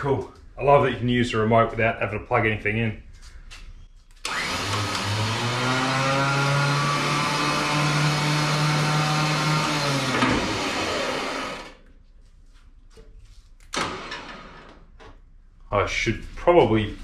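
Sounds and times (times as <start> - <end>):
electric winch motor whining hum: 4.2 - 11.8.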